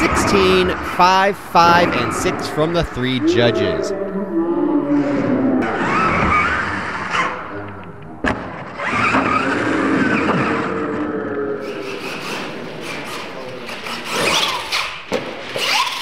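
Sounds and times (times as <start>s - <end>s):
rc truck motors whining: 5.4s - 7.8s, 8.6s - 16.0s.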